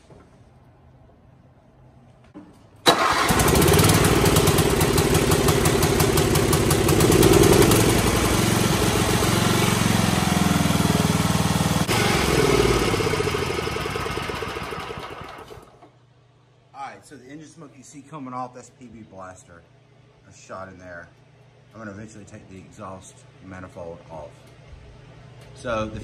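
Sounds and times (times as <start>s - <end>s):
lawn tractor engine running: 2.8s - 15.9s.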